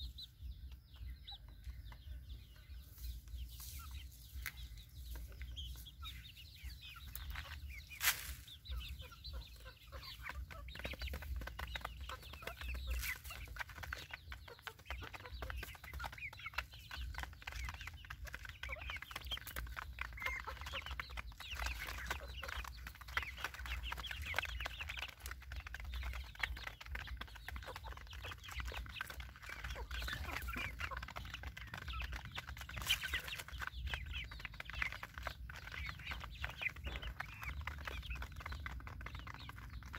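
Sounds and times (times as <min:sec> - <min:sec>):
chickens clucking and peeping: 0:00.0 - 0:39.9.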